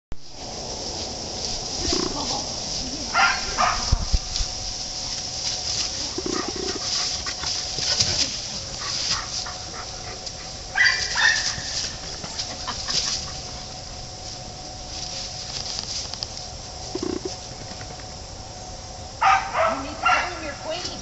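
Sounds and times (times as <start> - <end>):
leaves rustling and crackling: 0.2 - 21.0
dog growling: 6.1 - 8.3
dog yelping: 10.7 - 11.7.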